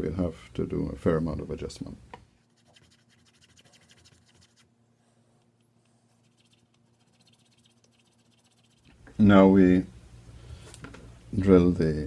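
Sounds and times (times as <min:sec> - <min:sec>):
wooden piece scratching on paper: 0:02.5 - 0:04.6, 0:06.2 - 0:08.9.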